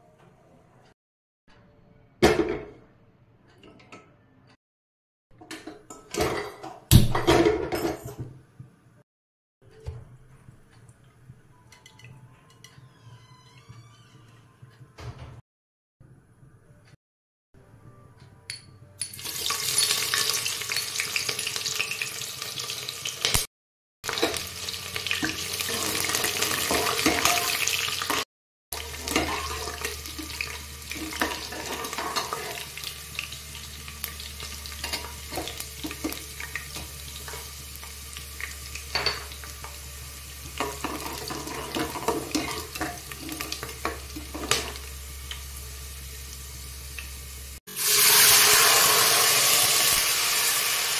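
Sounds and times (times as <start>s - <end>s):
onions sizzling in hot oil: 19.2s - 23.5s, 24.1s - 28.2s, 28.8s - 50.9s
metal spatula scraping pot: 28.9s - 32.9s, 40.6s - 44.8s.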